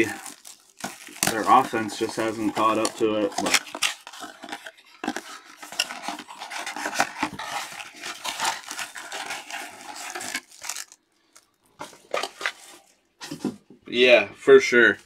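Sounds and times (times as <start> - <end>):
foil packs rustling: 0.0 - 13.0.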